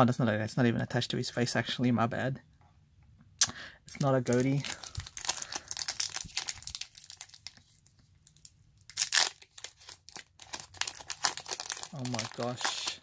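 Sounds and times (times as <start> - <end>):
foil wrapper crinkling and tearing: 3.9 - 13.0.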